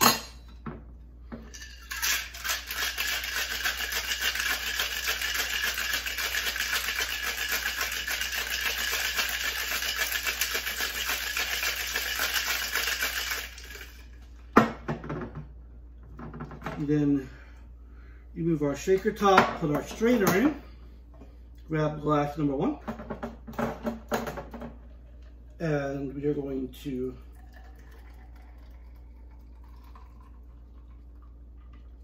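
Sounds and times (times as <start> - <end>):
ice rattling in cocktail shaker: 1.5 - 14.2.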